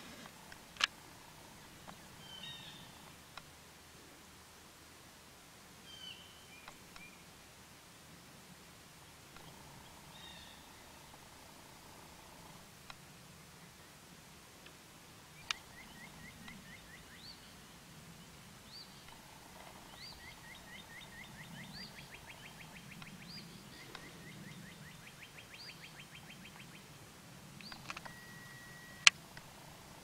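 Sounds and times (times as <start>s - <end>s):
faint low pulsing hum: 0.0s - 30.0s
birds singing: 15.4s - 17.6s, 18.2s - 27.0s, 27.6s - 29.1s.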